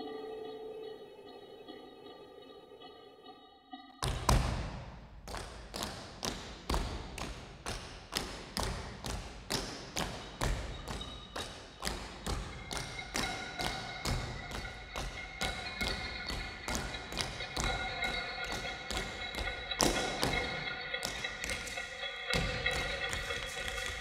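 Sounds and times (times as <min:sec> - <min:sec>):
high held tones: 0:00.0 - 0:04.0.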